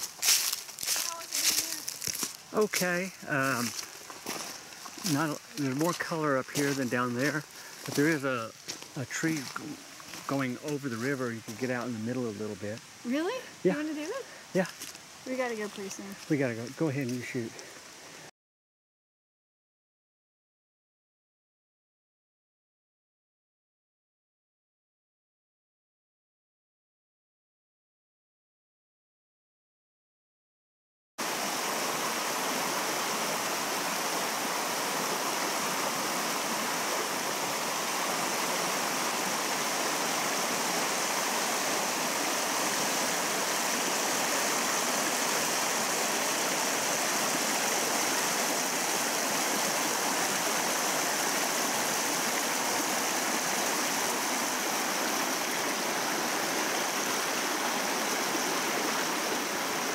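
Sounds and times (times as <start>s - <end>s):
river flowing over stones: 0.0s - 18.2s, 31.2s - 59.9s.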